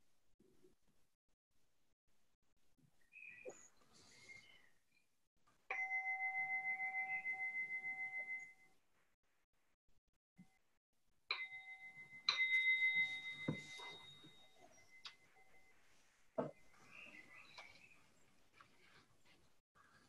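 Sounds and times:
meditation bell ringing: 5.7s - 8.7s, 11.3s - 15.8s.

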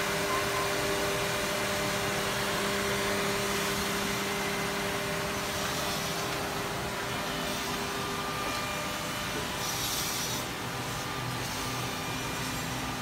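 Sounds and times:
woodworking machine whirring hum: 0.0s - 13.0s.

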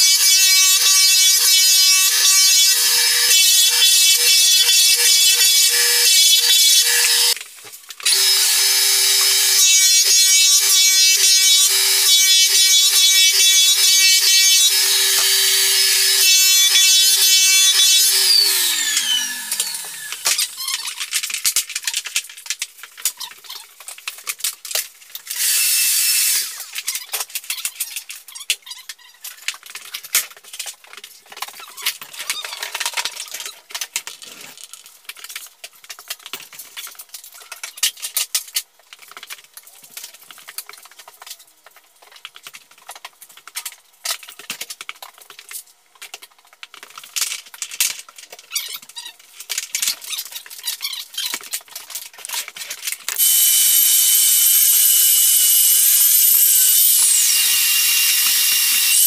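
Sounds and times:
floor sander whining: 0.0s - 7.4s, 8.1s - 20.4s, 53.1s - 59.0s.

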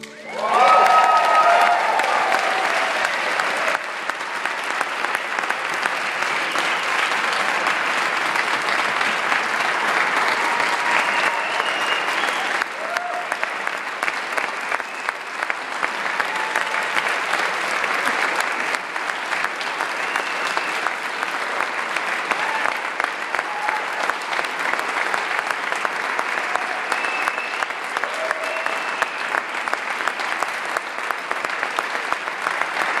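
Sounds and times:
crowd cries: 0.0s - 4.6s, 9.9s - 13.5s, 26.4s - 29.2s
audience clapping: 0.0s - 33.0s.

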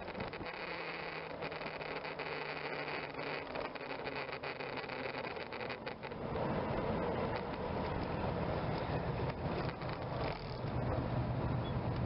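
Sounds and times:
wind noise on microphone: 0.0s - 0.6s
motorcycle engine hum: 0.0s - 12.0s.

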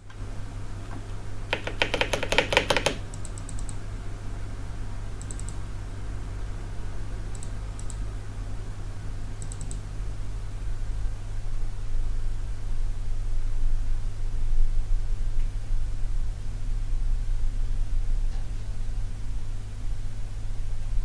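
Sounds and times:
computer low hum: 0.0s - 21.0s
keyboard typing: 1.5s - 3.8s, 5.2s - 5.6s, 7.4s - 8.0s, 9.4s - 9.8s.

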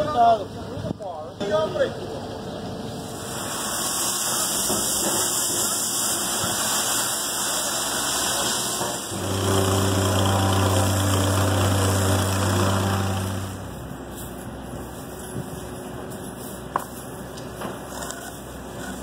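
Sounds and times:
plate compactor humming: 3.0s - 14.6s
stone pouring down a chute: 3.2s - 13.2s.

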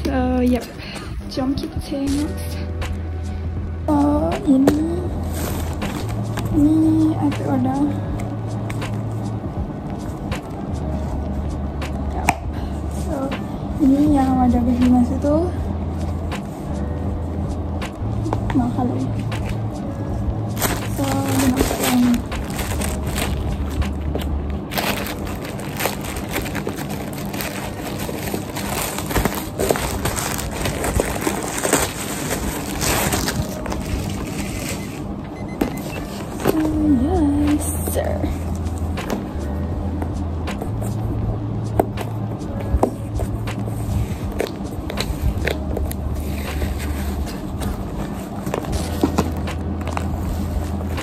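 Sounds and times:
background music with bass line: 1.7s - 35.6s, 36.4s - 51.0s
packing tape peeling: 20.5s - 35.1s
plastic bag crinkling: 20.6s - 35.1s.

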